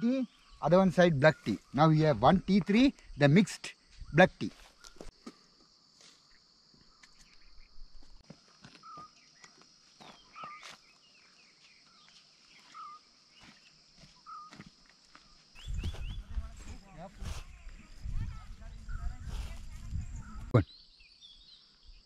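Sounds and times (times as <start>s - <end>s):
bird chirps: 8.7s - 22.0s.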